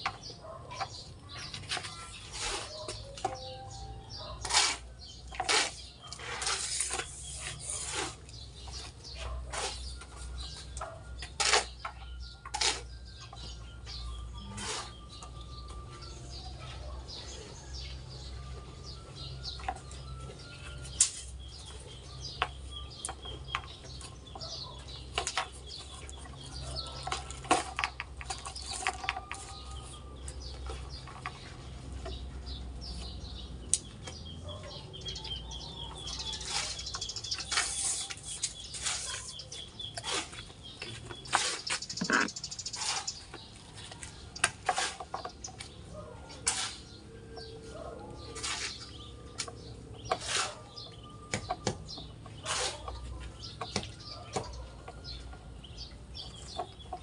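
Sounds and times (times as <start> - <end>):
birds chirping: 0.0 - 57.0
shovel scraping sand: 1.4 - 3.0, 4.2 - 15.2, 36.0 - 43.5, 44.4 - 45.5, 46.3 - 47.0, 48.2 - 49.1, 50.0 - 50.9, 52.4 - 53.5.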